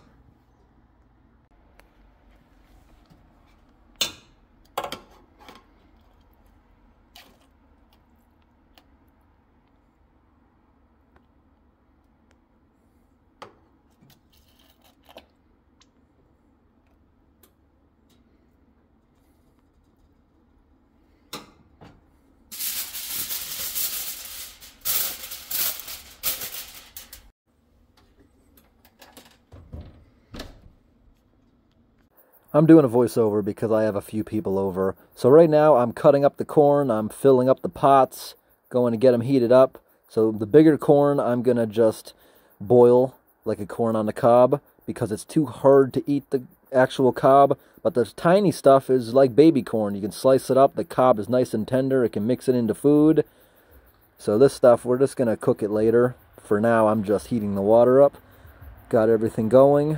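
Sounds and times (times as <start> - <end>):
aluminium foil crinkling: 14.0 - 15.3, 22.5 - 27.3.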